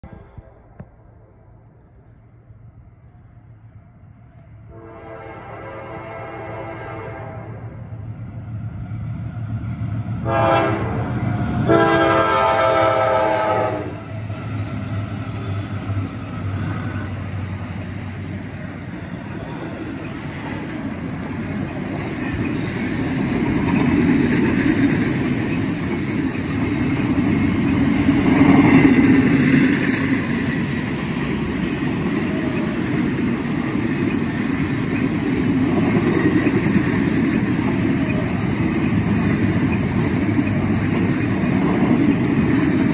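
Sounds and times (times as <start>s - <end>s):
train wheels rumbling on rails: 2.1s - 42.9s
locomotive air horn: 4.7s - 7.8s, 10.2s - 11.1s, 11.7s - 14.0s.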